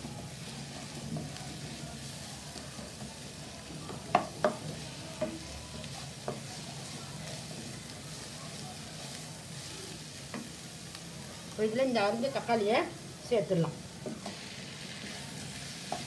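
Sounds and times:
wooden spatula stirring: 0.0 - 12.6
food sizzling in hot oil: 0.0 - 16.0
spatula knocking against pan: 4.1 - 5.4.

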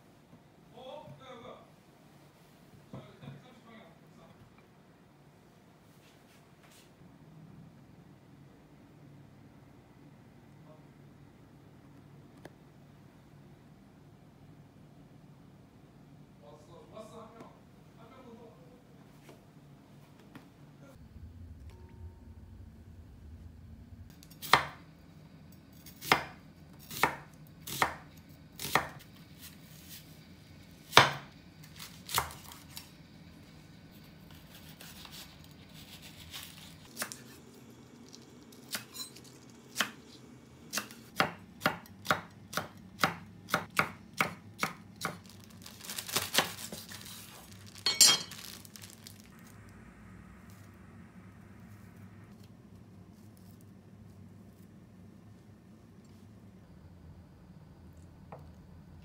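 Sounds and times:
knife chopping on wooden board: 24.4 - 24.8, 25.9 - 28.0, 28.6 - 29.0, 30.9 - 31.3, 40.7 - 45.2.

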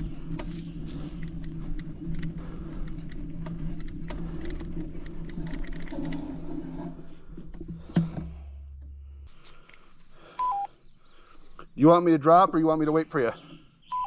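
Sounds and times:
tyres crunching over dirt and stones: 0.0 - 4.9
bike clicking and rattling: 0.0 - 8.5.

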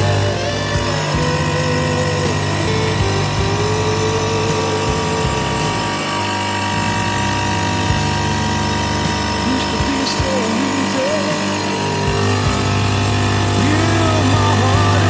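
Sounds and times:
stone router milling stone: 0.0 - 15.0.

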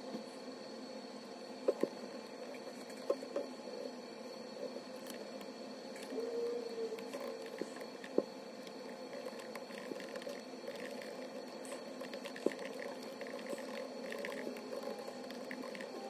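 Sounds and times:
laptop keyboard typing: 9.1 - 16.0.

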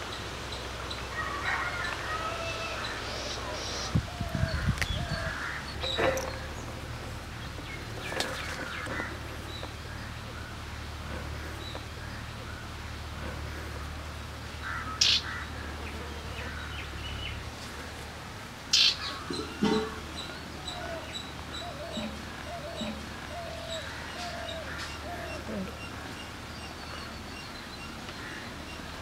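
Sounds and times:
small birds chirping: 18.7 - 29.0.

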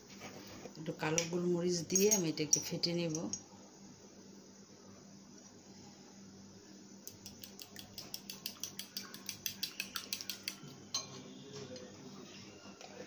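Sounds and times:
spoon beating eggs in bowl: 7.1 - 10.8.

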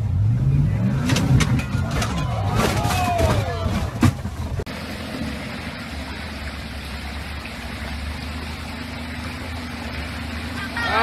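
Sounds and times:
car engine running at low revs: 0.0 - 11.0
stream water rushing: 2.2 - 11.0.

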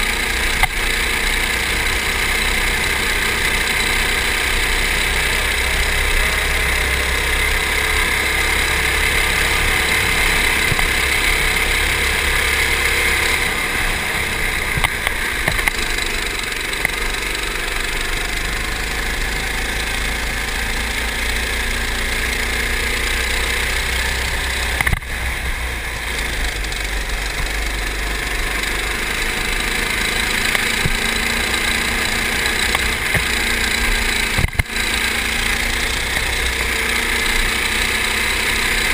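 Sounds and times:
go-kart engine revving: 0.0 - 38.9.

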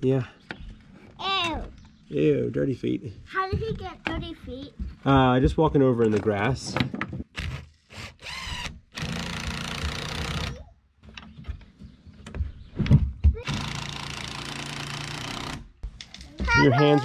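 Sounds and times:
cordless drill driving screws: 7.4 - 10.6, 13.4 - 15.7
drill clicks: 7.4 - 10.6.

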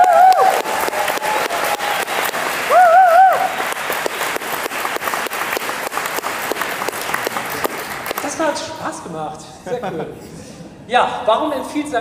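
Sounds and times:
audience applauding: 0.0 - 8.4
person cheering high-pitched: 2.7 - 3.5.

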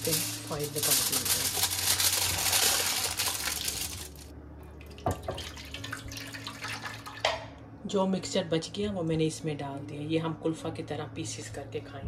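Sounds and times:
aluminium foil crinkling: 0.0 - 4.3.

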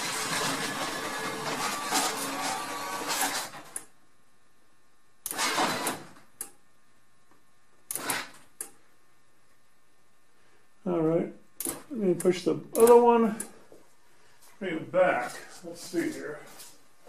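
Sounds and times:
garage door opener motor running: 0.0 - 3.9, 5.2 - 6.5, 7.9 - 8.7
sharp click: 11.6 - 13.5.

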